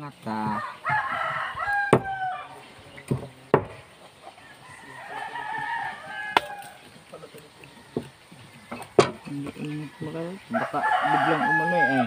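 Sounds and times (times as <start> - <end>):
rooster crowing: 0.4 - 2.7, 4.2 - 9.0, 9.7 - 12.0.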